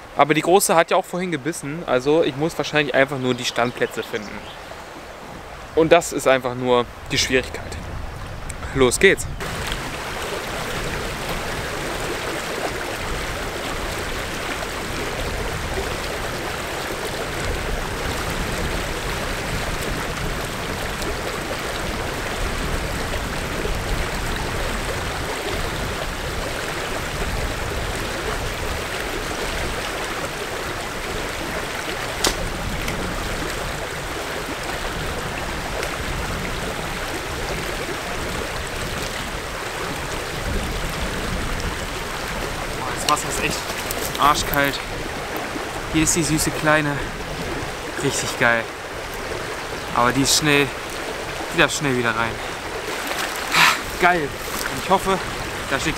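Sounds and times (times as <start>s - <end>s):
brook water rushing: 0.0s - 55.9s
sharp click: 32.2s - 32.4s.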